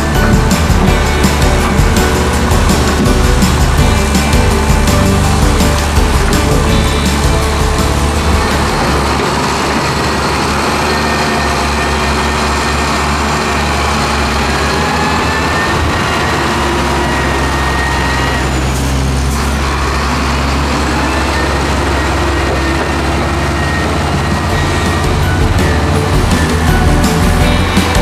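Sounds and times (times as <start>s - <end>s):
diesel truck engine running: 0.0s - 28.0s.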